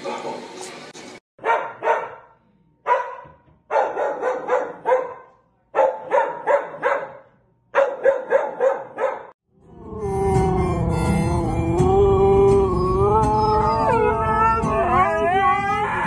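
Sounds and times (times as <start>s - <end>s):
dog barking: 1.4s - 9.4s.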